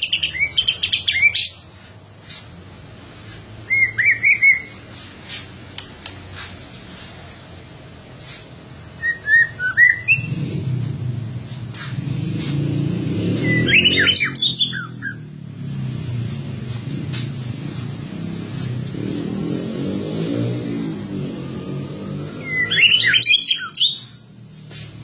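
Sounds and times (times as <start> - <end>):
low engine hum: 0.0 - 23.2
bird singing whistled phrases: 3.7 - 4.8, 9.0 - 10.4, 13.4 - 15.2, 22.4 - 24.1.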